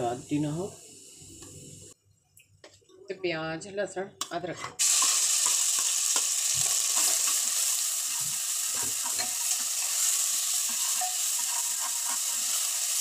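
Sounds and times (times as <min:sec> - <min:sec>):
onion sizzling in hot oil: 0:00.0 - 0:02.0, 0:04.8 - 0:13.0.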